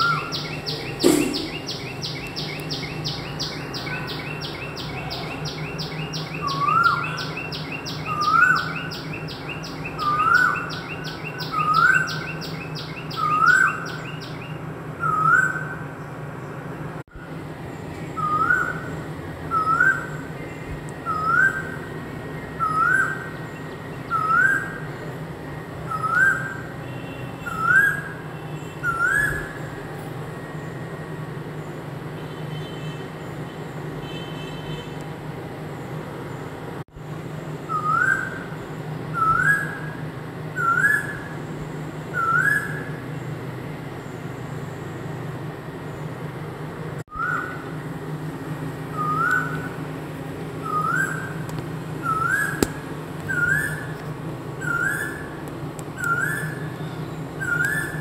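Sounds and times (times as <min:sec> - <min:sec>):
bird whistled rising calls: 0:00.0 - 0:15.9, 0:18.1 - 0:21.9, 0:22.5 - 0:25.0, 0:25.8 - 0:26.7, 0:27.4 - 0:29.8, 0:37.6 - 0:40.0, 0:40.6 - 0:41.4, 0:42.1 - 0:43.0, 0:47.1 - 0:47.8, 0:48.9 - 0:49.9, 0:50.6 - 0:51.4, 0:52.0 - 0:54.0, 0:54.6 - 0:55.4, 0:56.0 - 0:58.0
faint bird chirps: 0:00.0 - 0:15.9
steady low hum: 0:35.2 - 0:58.0.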